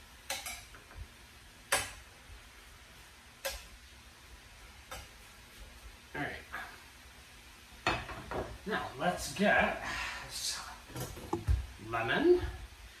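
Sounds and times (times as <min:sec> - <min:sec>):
metal spoon clinking on skillet: 0:00.3 - 0:00.8.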